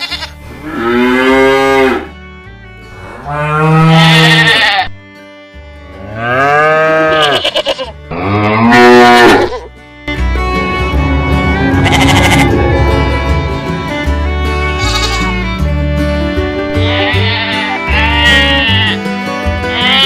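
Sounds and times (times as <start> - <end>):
cow mooing: 0.0 - 2.1, 3.0 - 4.9, 6.0 - 9.6, 10.7 - 13.9.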